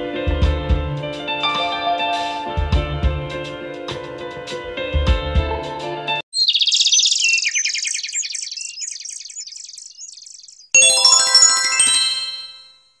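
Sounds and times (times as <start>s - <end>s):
high-pitched twittering trill: 6.4s - 12.6s
bright chime chord: 10.8s - 12.8s.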